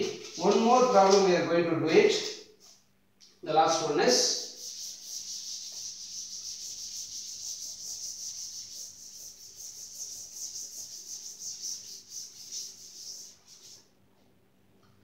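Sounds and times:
duster scrubbing a blackboard: 0:04.4 - 0:13.9.

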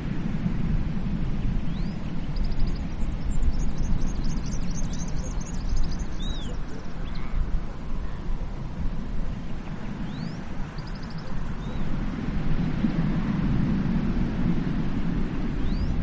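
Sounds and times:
small birds chirping and trilling: 0:01.7 - 0:08.4, 0:09.1 - 0:12.0, 0:15.6 - 0:16.0.

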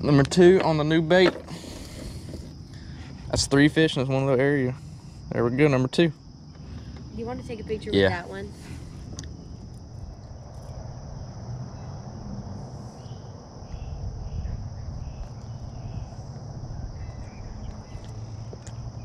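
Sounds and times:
insect chorus: 0:00.0 - 0:19.0
low rumbling noise: 0:06.4 - 0:19.0.

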